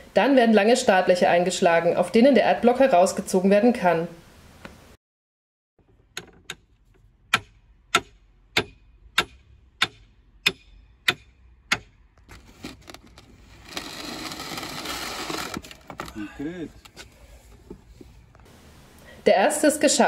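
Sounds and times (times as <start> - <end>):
long scraping noise: 12.3 - 18.2.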